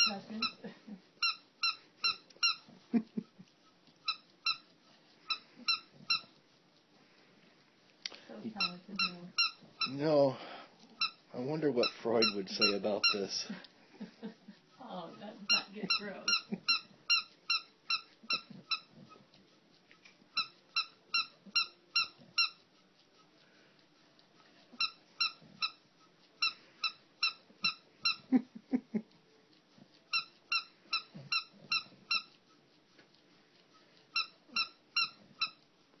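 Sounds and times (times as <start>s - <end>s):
dog toy squeaking: 0.0s - 6.4s, 8.5s - 10.1s, 10.9s - 13.5s, 14.7s - 19.4s, 20.3s - 22.8s, 24.3s - 28.4s, 29.9s - 32.4s, 34.0s - 35.7s.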